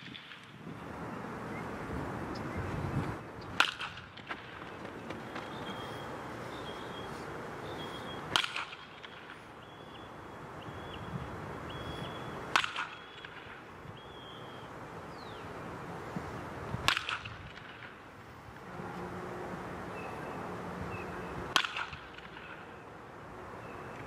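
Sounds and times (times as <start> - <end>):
baseball bat cracking balls: 0.0 - 0.7, 3.4 - 6.0, 7.7 - 9.7, 12.0 - 13.7, 16.7 - 18.1, 21.5 - 22.7.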